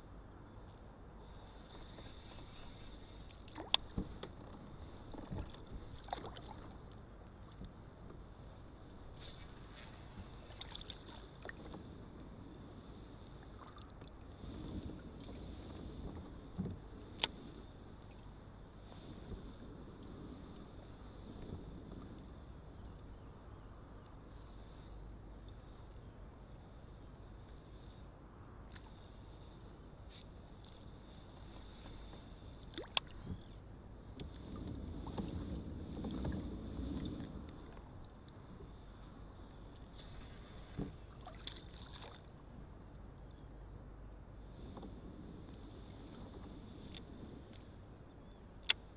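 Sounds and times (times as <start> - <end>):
faint low rumble: 0.0 - 48.9
water sloshing against hull: 1.2 - 43.3, 44.4 - 48.9
knocks and clicks from kayak hull: 3.5 - 6.4, 16.1 - 17.3.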